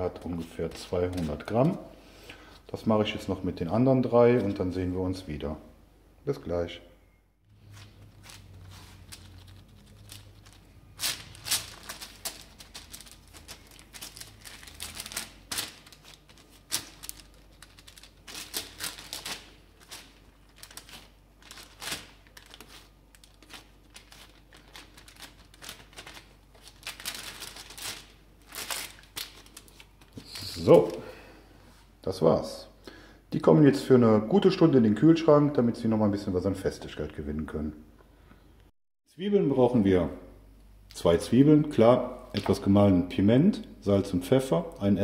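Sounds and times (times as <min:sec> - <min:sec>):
baking paper crinkling: 0:00.0 - 0:01.8, 0:07.6 - 0:31.0.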